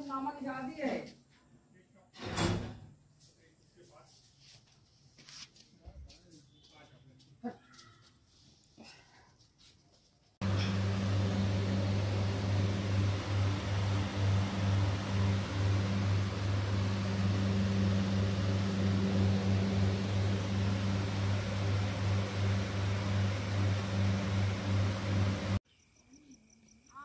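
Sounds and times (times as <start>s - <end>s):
low electrical hum: 10.4s - 25.6s.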